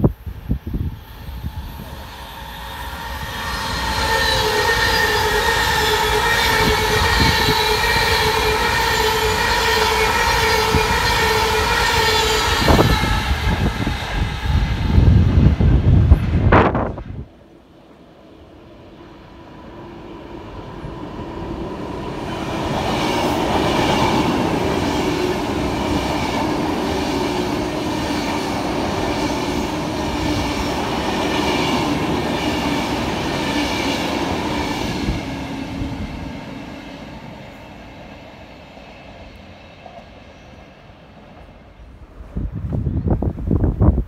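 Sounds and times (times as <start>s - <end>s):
electric train passing: 0.0s - 44.0s.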